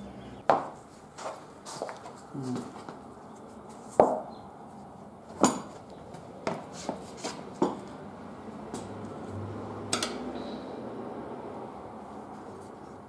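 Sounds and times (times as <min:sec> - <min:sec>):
tire levers clinking on wheel rim: 0:05.3 - 0:06.0.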